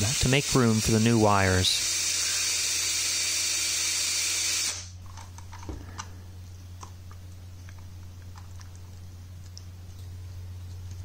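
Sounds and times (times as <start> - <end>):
power drill boring into plastic: 1.7 - 4.9.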